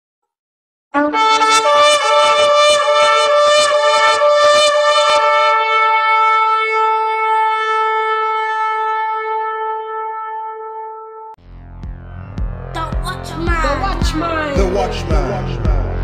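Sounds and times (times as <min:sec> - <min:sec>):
shofar blasts: 0:01.0 - 0:11.3.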